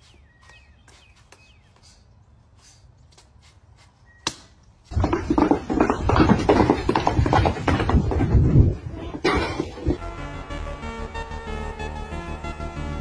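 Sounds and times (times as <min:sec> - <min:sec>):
loud music: 0:10.0 - 0:13.0.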